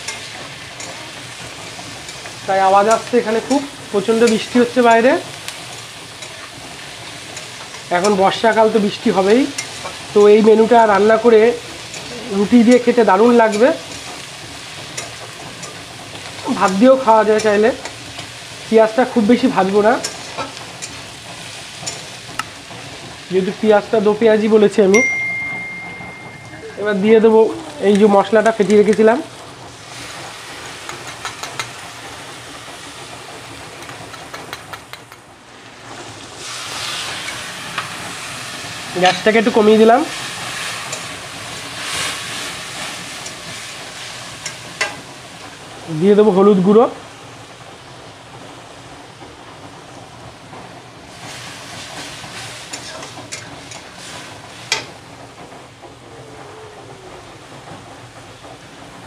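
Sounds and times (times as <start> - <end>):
spice paste sizzling in oil: 0.0 - 25.8, 26.8 - 55.1
steam hissing: 0.0 - 59.0
metal spatula clicking on pan: 30.9 - 31.7.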